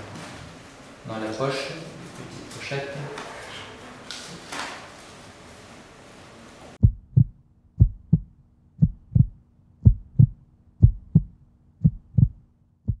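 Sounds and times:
faint low hum: 6.8s - 13.0s
heartbeat thumping: 6.8s - 13.0s.

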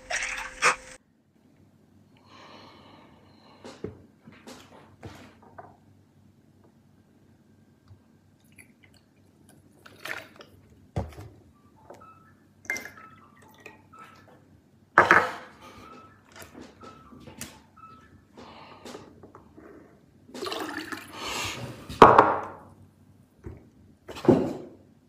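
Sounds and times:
liquid poured into glasses: 12.7s - 13.8s, 20.4s - 21.2s.

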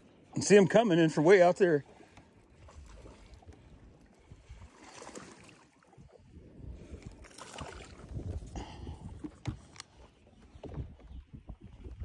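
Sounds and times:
water lapping against boat hull: 0.0s - 12.0s
wind on microphone: 2.6s - 4.8s, 5.9s - 12.0s.

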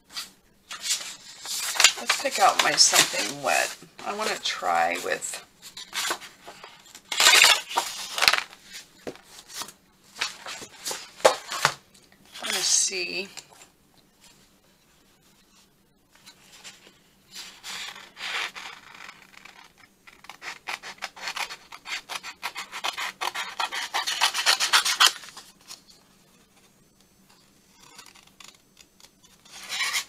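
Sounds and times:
paper scraping: 0.1s - 5.2s, 17.3s - 25.4s, 29.4s - 30.0s.

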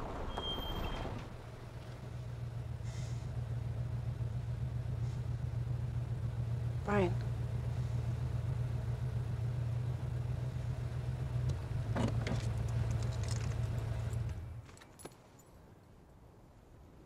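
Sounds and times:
car engine and road rumble: 0.0s - 17.0s.

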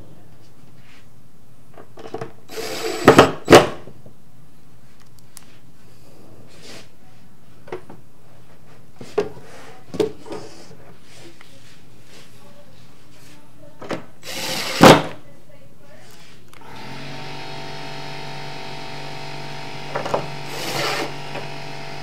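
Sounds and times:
cordless drill driving screws: 2.5s - 3.4s, 14.2s - 15.1s, 16.6s - 22.0s.

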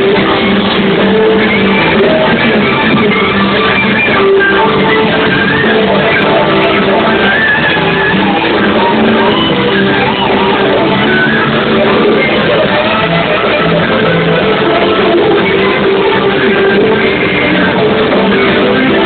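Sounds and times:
electric guitar: 0.0s - 19.0s
live band playing pop-rock: 0.0s - 19.0s.

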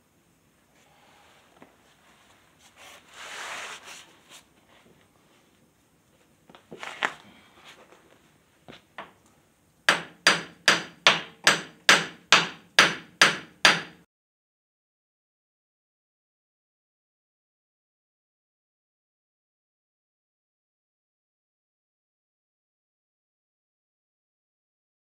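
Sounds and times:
hammer striking steel pin: 9.9s - 14.0s.

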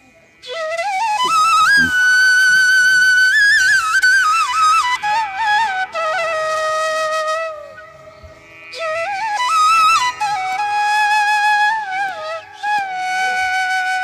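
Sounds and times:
solo flute melody: 0.4s - 14.0s.

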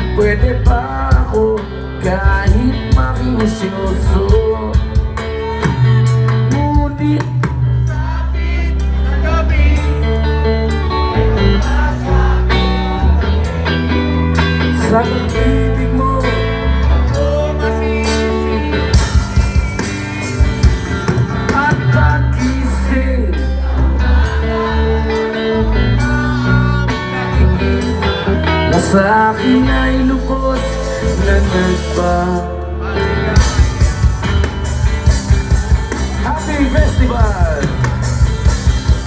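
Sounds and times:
drum kit: 0.0s - 8.1s, 12.5s - 23.2s, 33.3s - 39.0s
bass guitar: 0.0s - 39.0s
electric guitars: 0.0s - 39.0s.

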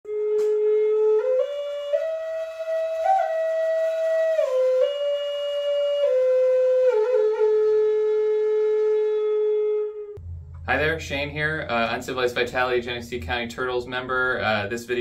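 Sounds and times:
solo flute melody: 0.1s - 10.2s.

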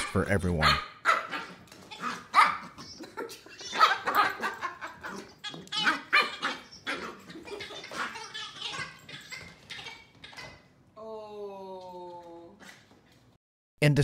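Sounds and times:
puppy barking: 0.6s - 3.0s, 3.6s - 10.6s.

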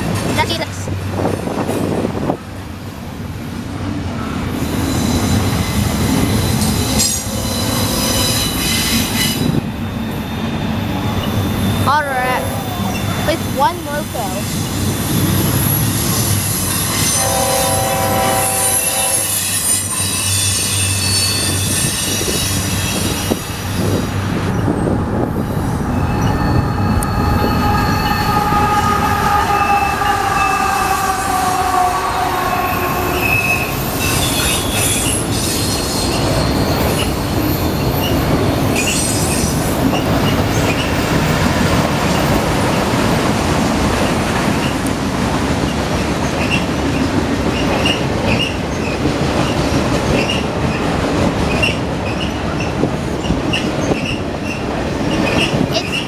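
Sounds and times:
train rumbling past: 0.0s - 56.0s
train wheel squeal: 4.5s - 13.3s, 14.4s - 25.0s, 25.9s - 31.6s, 32.5s - 42.3s, 46.2s - 50.9s, 51.5s - 56.0s
train horn: 17.0s - 19.8s, 28.1s - 33.8s.

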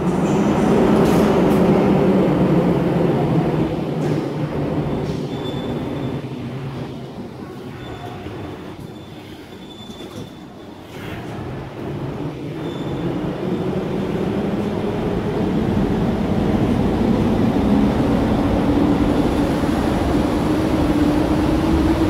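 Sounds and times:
train rumbling past: 0.0s - 9.7s, 11.0s - 22.0s
wheel squeal: 7.8s - 11.1s.

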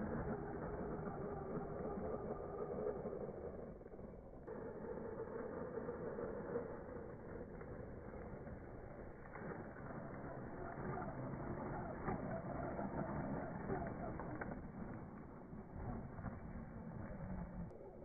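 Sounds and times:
toy car electric motor: 0.0s - 14.8s.

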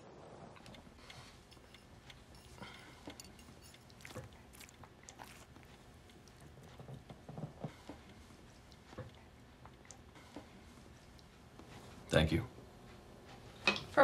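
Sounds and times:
chewing: 0.4s - 10.2s
forks clinking on plates: 1.5s - 5.5s.

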